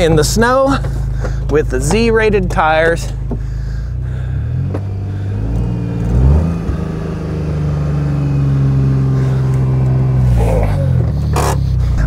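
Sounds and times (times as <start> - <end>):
utility vehicle engine revving: 0.1 - 12.0
tires spinning in snow: 3.9 - 12.0.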